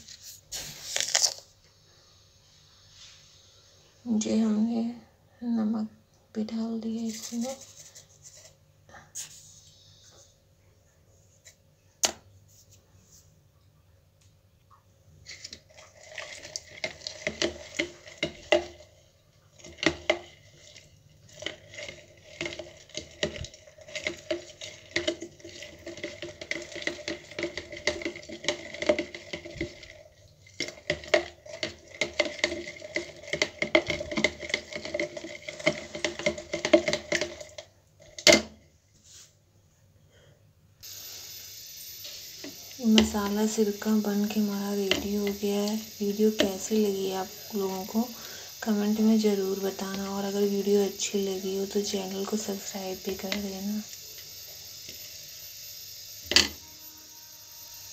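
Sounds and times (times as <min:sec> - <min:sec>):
spoon scraping plastic tub: 0:06.9 - 0:08.6, 0:15.2 - 0:18.8, 0:19.5 - 0:38.2.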